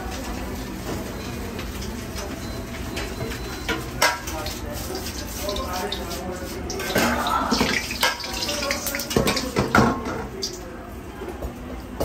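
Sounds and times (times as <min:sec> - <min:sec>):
water sloshing and steaming in wok: 0:03.4 - 0:10.6.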